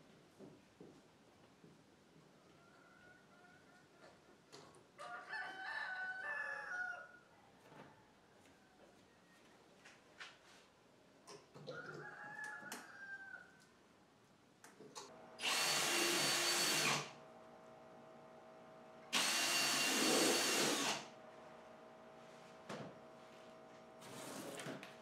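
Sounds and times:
cordless drill drilling plywood: 15.4s - 17.1s, 19.1s - 21.1s.

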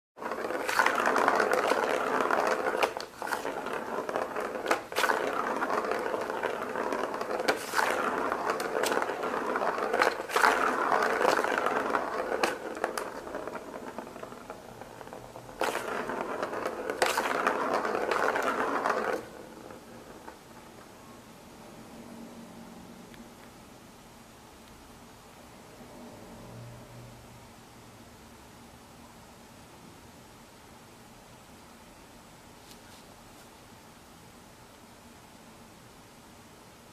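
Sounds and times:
plastic ball rolling rattle: 0.2s - 20.9s.

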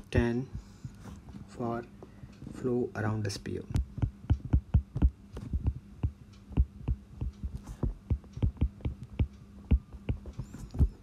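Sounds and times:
faint steady hum: 0.0s - 11.0s
stylus tapping on glass screen: 3.7s - 11.0s.

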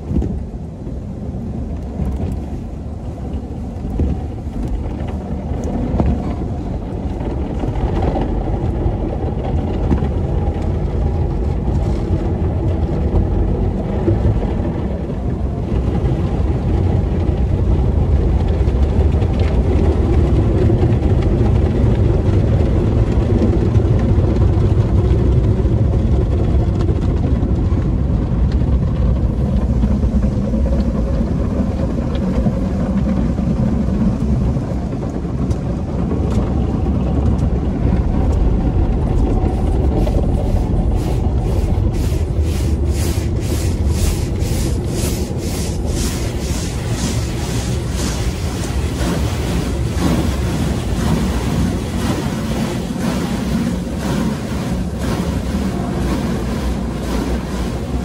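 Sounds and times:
low machinery rumble: 0.0s - 58.0s
water spraying on windshield: 39.2s - 58.0s
cloth brushes washing car: 39.3s - 58.0s.

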